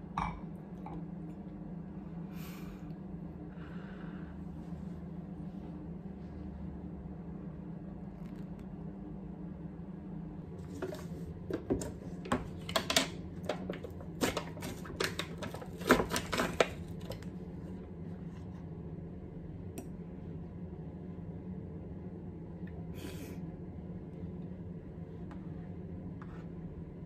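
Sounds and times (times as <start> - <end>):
steady low hum: 0.0 - 27.0
foil lid crinkling: 12.6 - 17.3.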